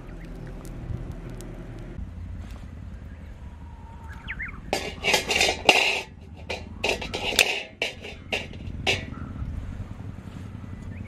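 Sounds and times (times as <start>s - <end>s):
metal tongs rattling: 4.7s - 9.2s
metal grate clanking and scraping: 4.7s - 9.3s.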